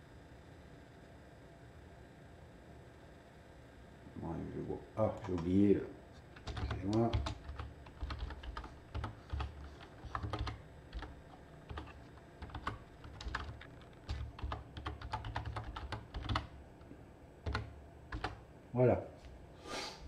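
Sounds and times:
keyboard typing: 6.3 - 16.6, 17.4 - 18.4.

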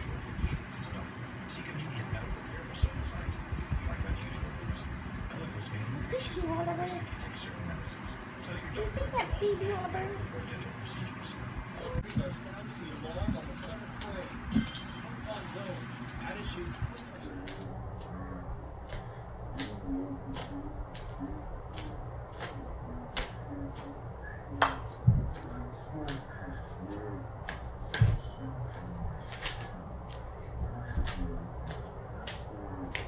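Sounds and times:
muffled television voice: 0.0 - 33.0.

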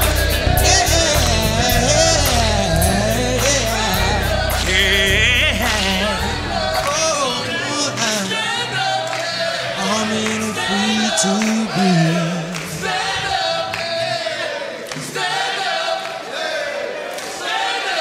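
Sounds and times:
low voice holding long notes: 0.0 - 8.3, 9.8 - 12.6
choir singing: 0.0 - 18.0.

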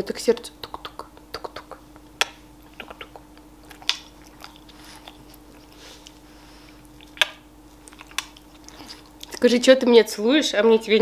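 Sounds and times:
steady low hum: 0.0 - 11.0
sharp smacking clicks: 0.6 - 4.5, 7.0 - 8.4
wet mouth noises: 0.6 - 9.4.

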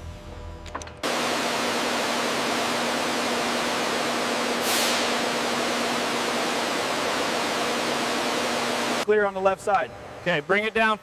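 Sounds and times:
steady loud hiss: 1.1 - 11.0
short sharp hiss: 4.6 - 5.2.

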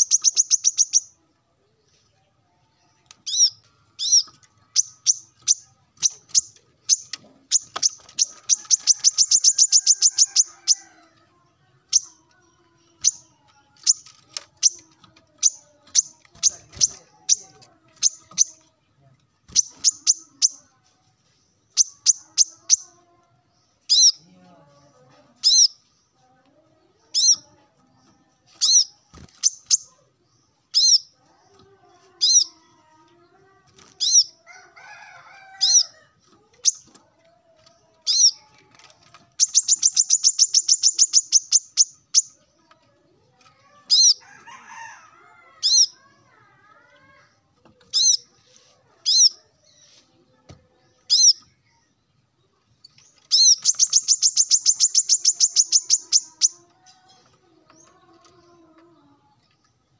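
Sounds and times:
bird trill: 0.0 - 1.2, 3.2 - 11.0, 19.5 - 20.6, 30.7 - 31.2, 39.3 - 42.4, 53.0 - 56.6
bird chirping: 0.0 - 11.0, 19.4 - 24.4, 26.8 - 33.3, 35.0 - 44.9, 50.7 - 59.9.

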